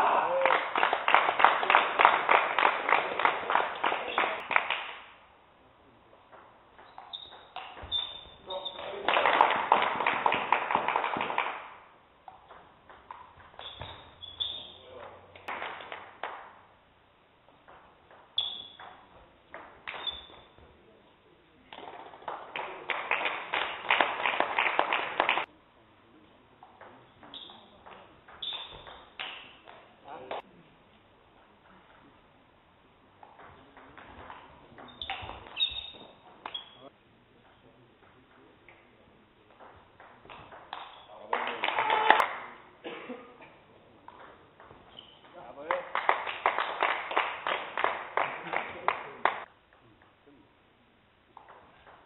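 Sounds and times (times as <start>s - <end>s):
people clapping: 0.0s - 5.2s, 8.4s - 11.9s, 15.3s - 16.5s, 21.7s - 25.5s, 29.2s - 30.5s, 40.2s - 43.0s, 45.2s - 49.5s
shoes squeaking on gym floor: 6.8s - 9.0s, 12.3s - 15.4s, 18.4s - 19.2s, 19.9s - 20.7s, 27.0s - 29.8s, 34.8s - 36.9s, 40.8s - 41.3s, 44.7s - 45.5s.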